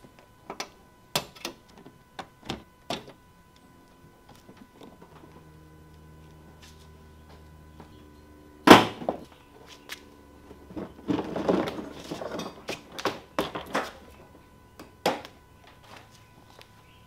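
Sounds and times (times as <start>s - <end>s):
plastic bumper snapping: 8.7s - 9.3s
plastic rubbing and scraping: 10.6s - 14.0s.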